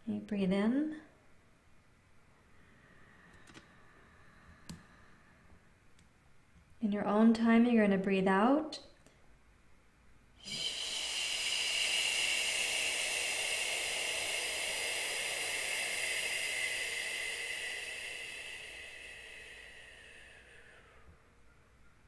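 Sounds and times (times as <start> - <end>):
woman exhaling shh through lips: 10.4 - 21.4.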